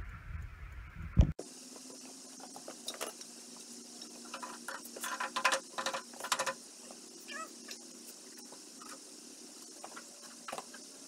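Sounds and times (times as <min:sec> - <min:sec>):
cast-iron stove clattering on concrete: 0:02.5 - 0:06.6.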